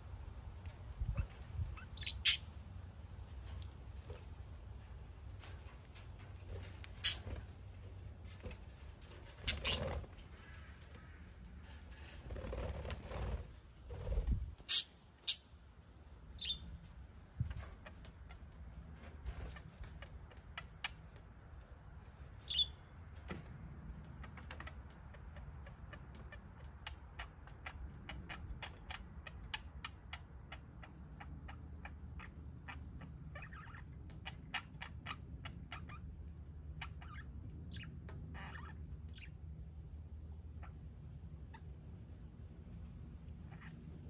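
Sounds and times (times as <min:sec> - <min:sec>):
budgerigars chirping: 0:01.1 - 0:02.6, 0:16.4 - 0:16.6, 0:22.4 - 0:22.8.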